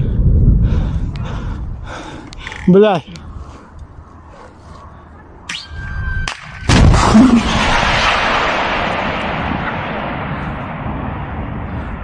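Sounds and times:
gunshot blast: 0:06.2 - 0:11.6
gunshot roar: 0:06.3 - 0:11.7.

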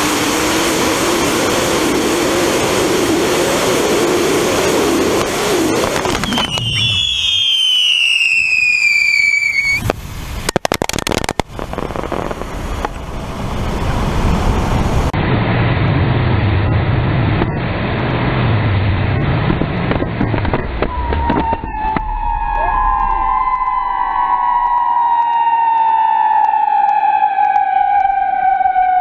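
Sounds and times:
firework rocket motors rushing: 0:00.0 - 0:15.1
firework crackles and pops: 0:04.3 - 0:14.1
falling shrill whistle: 0:06.2 - 0:09.8, 0:20.9 - 0:29.0.

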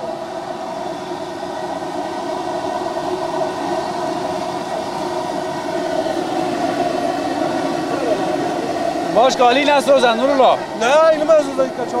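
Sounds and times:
stove burner roaring: 0:00.0 - 0:12.0.

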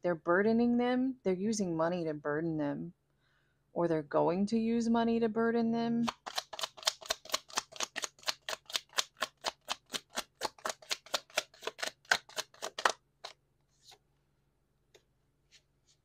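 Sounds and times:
cards being shuffled: 0:06.0 - 0:14.0.

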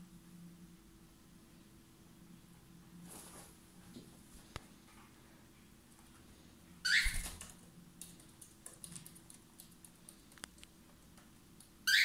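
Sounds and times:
cockatiel harsh calls: 0:06.8 - 0:07.4.

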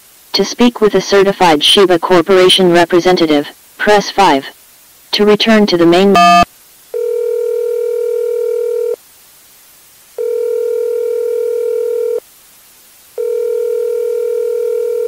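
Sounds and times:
telephone ringing tone: 0:06.1 - 0:06.4, 0:07.0 - 0:09.0, 0:10.2 - 0:12.2, 0:13.2 - 0:15.0.

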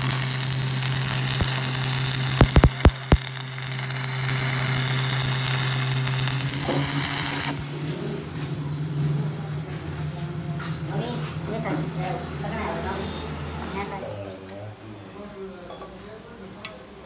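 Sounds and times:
welding arc hissing: 0:00.0 - 0:07.6
welding sharp pops: 0:00.0 - 0:07.6.

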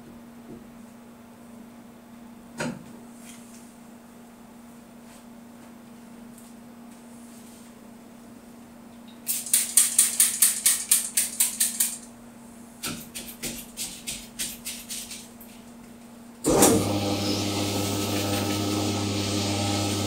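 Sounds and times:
quick clicks of ball spinner: 0:09.3 - 0:12.1
electric motor humming: 0:16.5 - 0:20.0.

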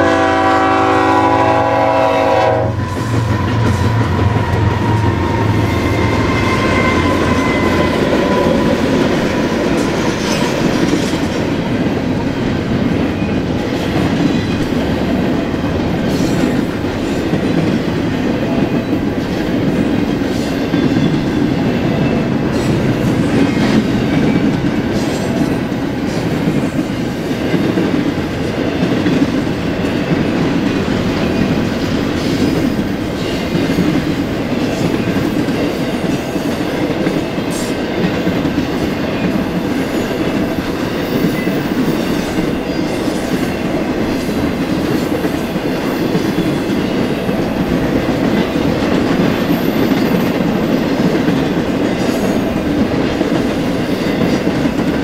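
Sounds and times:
train horn: 0:00.0 - 0:08.9
freight train rumbling: 0:00.0 - 0:55.0.

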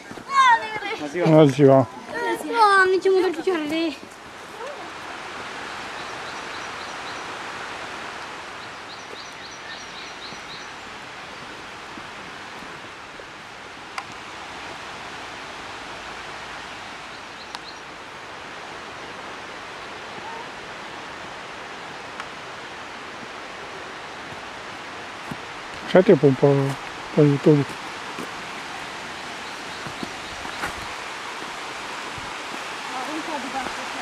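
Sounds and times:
mountain stream rushing: 0:00.0 - 0:34.0
bird chirping: 0:08.6 - 0:10.8, 0:28.8 - 0:31.0.

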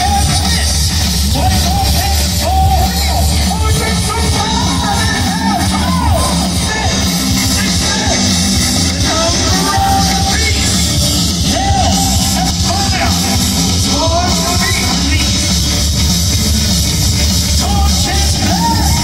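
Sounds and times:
man singing into microphone: 0:00.0 - 0:15.4, 0:17.6 - 0:19.0
bass guitar: 0:00.0 - 0:19.0
distorted electric guitar: 0:00.0 - 0:19.0
drums: 0:00.0 - 0:19.0.

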